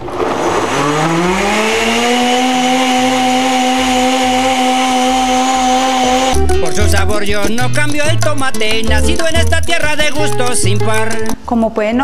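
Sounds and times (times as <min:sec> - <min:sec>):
blender motor whining: 0:00.1 - 0:06.4.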